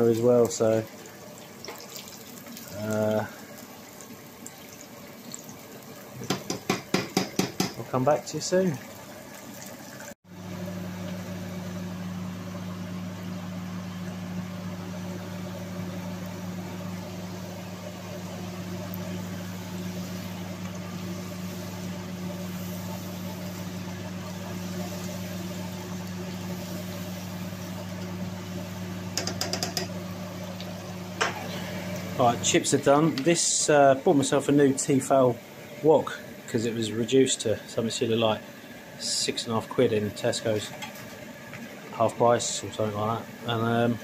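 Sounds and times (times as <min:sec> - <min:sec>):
oil bubbling in a wok: 0:00.0 - 0:32.2
spatula clicking in a wok: 0:29.2 - 0:29.9.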